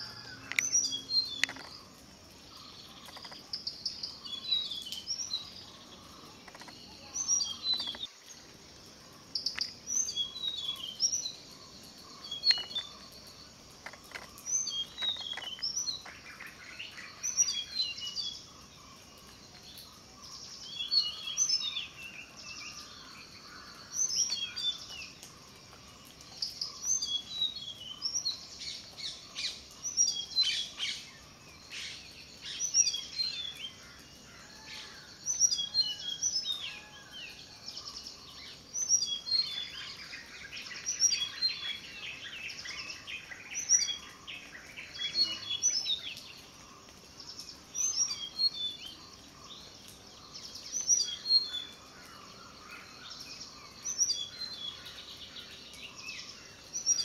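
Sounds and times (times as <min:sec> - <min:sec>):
flycatcher singing: 0:00.0 - 0:08.1, 0:09.3 - 0:18.6, 0:37.8 - 0:46.3
other birds chirping: 0:00.0 - 0:08.4, 0:09.2 - 0:57.0.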